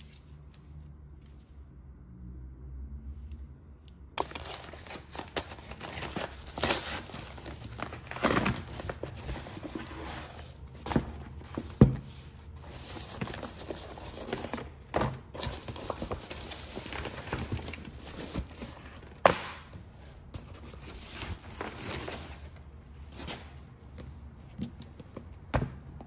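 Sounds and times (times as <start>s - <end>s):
paper bag rustling and crinkling: 4.2s - 19.2s.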